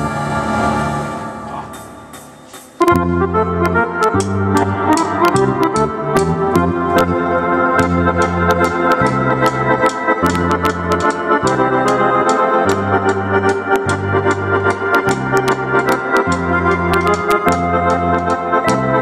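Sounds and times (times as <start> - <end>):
accordion chords: 0.0 - 19.0
keyboard bass: 0.0 - 19.0
drum kit with cymbals: 1.5 - 3.0.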